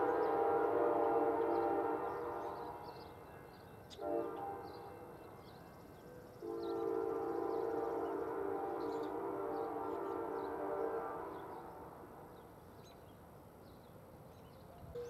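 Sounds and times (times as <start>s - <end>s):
locomotive air horn blasts: 0.0s - 2.9s, 4.0s - 5.1s, 6.4s - 11.9s.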